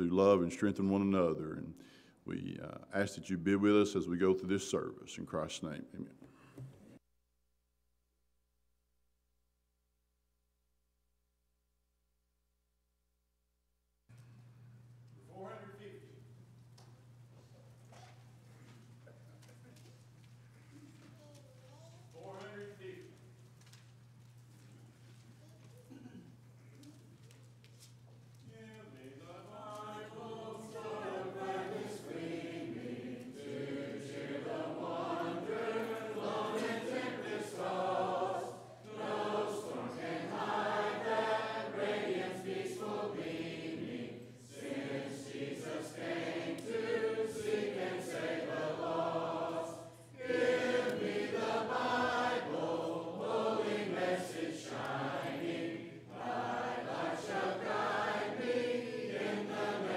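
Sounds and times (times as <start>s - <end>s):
congregation singing a hymn: 28.5s - 59.9s.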